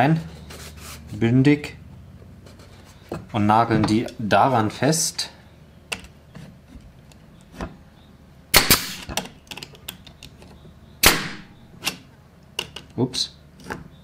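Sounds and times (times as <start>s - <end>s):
pneumatic nailer firing: 8.5s - 9.2s, 11.0s - 12.0s.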